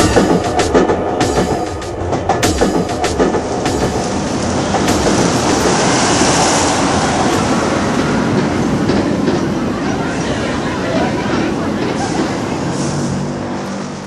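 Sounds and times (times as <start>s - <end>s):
train rumbling on rails: 0.0s - 14.0s.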